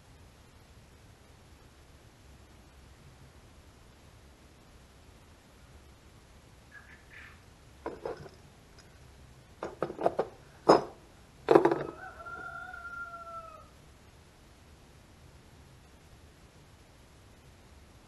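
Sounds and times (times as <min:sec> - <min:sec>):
short sharp clicks and knocks: 0:09.6 - 0:11.9
rooster crowing: 0:11.6 - 0:13.8.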